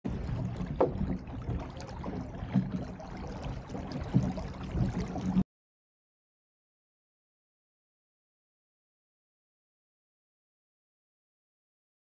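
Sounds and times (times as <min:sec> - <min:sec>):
water splashing along hull: 0:00.0 - 0:05.4.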